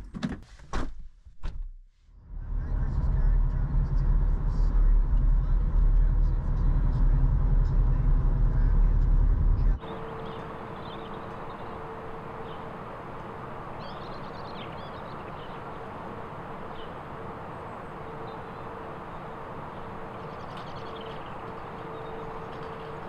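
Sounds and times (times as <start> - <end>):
low hum: 2.1 - 23.0
birds chirping: 9.8 - 23.0.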